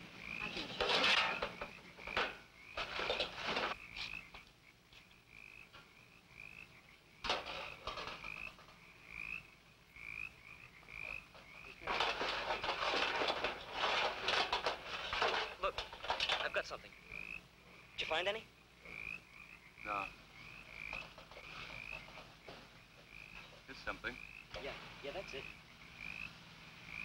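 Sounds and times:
rubbish rustling and rattling: 0.0s - 4.4s, 7.2s - 8.8s, 11.0s - 16.8s, 20.6s - 25.4s.

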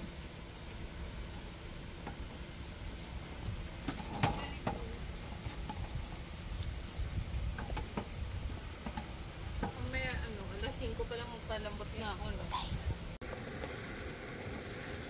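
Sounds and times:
spring rolls sizzling in oil: 0.0s - 15.0s.

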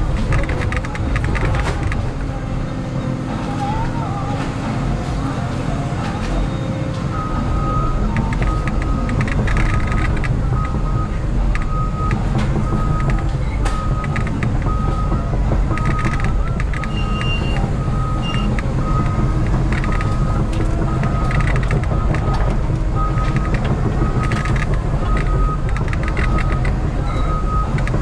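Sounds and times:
diesel engine running under load: 0.0s - 28.0s
high machine beep: 6.4s - 27.8s.

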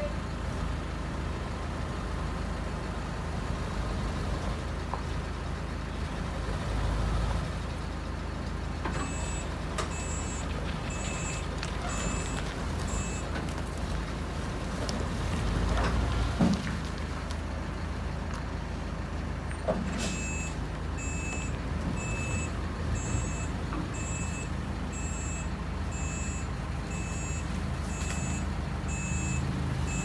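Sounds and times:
heavy engine rumbling: 0.0s - 30.0s
truck reversing alarm beeps: 8.8s - 13.5s, 19.0s - 30.0s.

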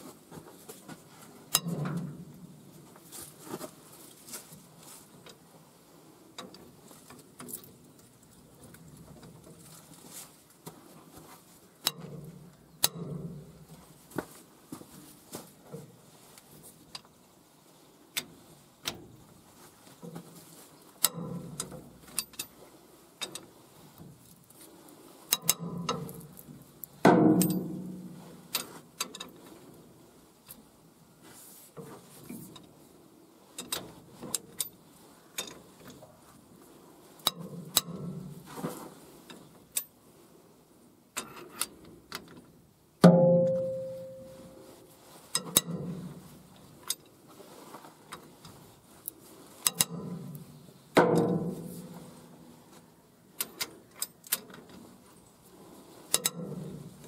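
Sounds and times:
sharp metal clanks: 27.0s - 28.2s, 43.0s - 44.6s.

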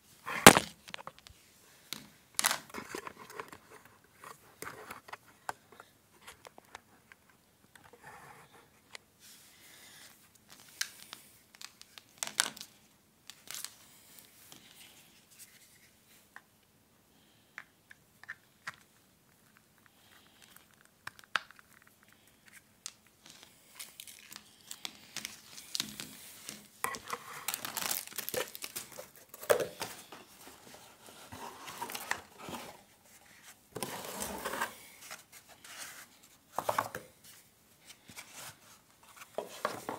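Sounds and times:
plastic wrap crinkling: 20.7s - 32.7s.

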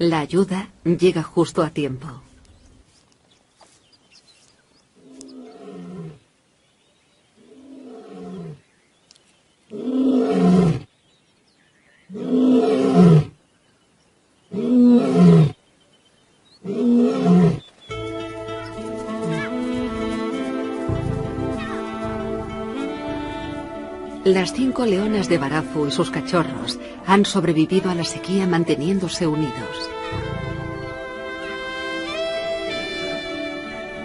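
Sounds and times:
music: 17.9s - 34.0s.

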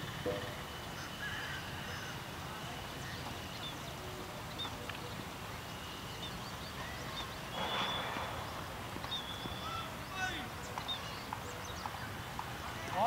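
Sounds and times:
bird chirps and whistles: 9.1s - 9.9s.

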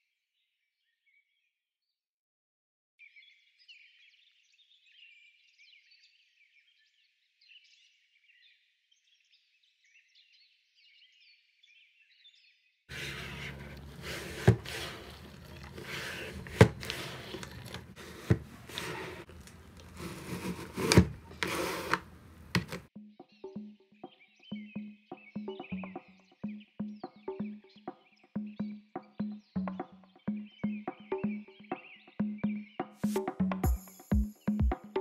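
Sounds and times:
water sloshing in mop bucket: 12.9s - 21.4s.

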